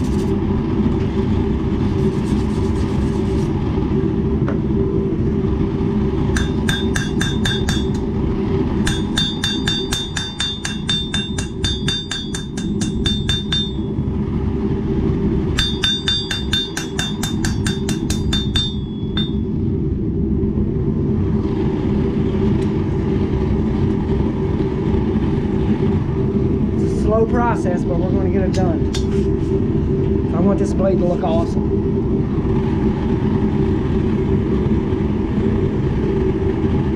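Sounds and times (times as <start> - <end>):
steady low rumble: 0.0 - 36.9
hammer striking steel on anvil: 6.3 - 8.0, 8.8 - 14.0, 15.6 - 19.4, 28.9 - 29.2.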